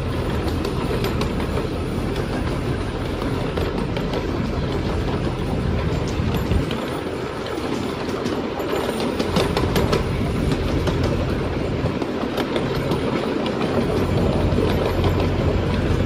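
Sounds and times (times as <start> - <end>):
train rumbling on track: 0.0 - 16.0
wheels clicking over rail joints: 0.0 - 16.0.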